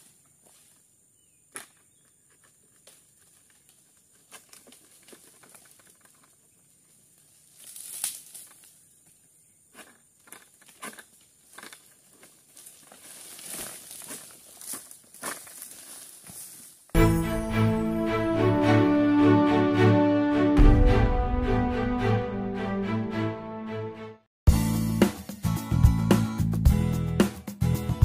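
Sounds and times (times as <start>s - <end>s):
sickle cutting palm fronds: 7.4s - 8.8s, 9.7s - 16.9s.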